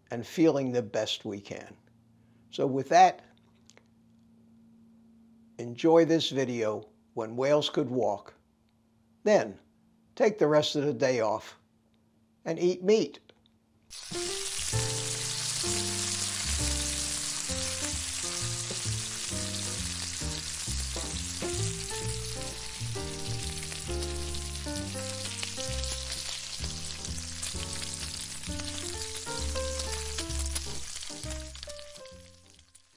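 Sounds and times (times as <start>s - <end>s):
bacon sizzling in a pan: 13.9s - 32.9s
background music: 14.0s - 32.6s.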